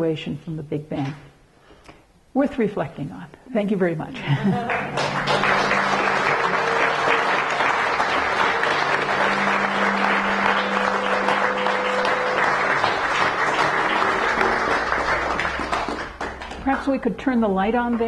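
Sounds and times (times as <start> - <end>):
audience applauding: 4.5 - 16.8.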